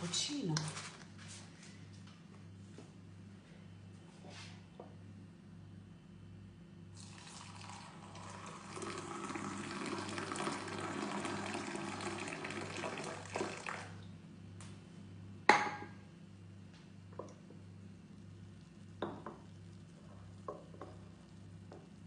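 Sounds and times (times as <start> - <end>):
water pouring into mug: 7.0 - 14.0.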